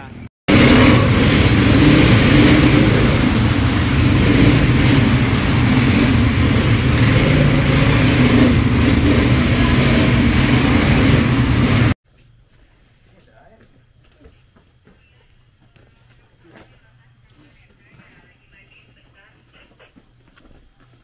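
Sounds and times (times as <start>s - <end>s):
broad rushing noise: 0.5s - 12.0s
quad bike engine running: 0.5s - 12.0s.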